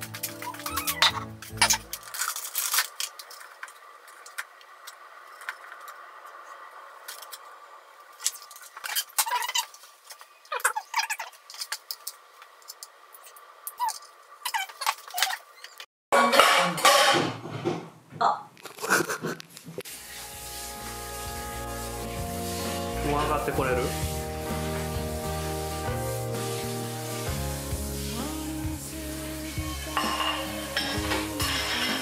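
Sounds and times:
dishes and utensils clattering: 0.0s - 3.6s, 16.2s - 17.9s, 29.8s - 32.0s.

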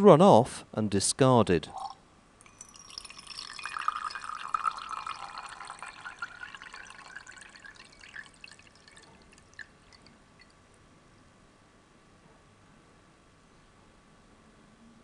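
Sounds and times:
liquid trickling and dripping: 1.8s - 10.6s.

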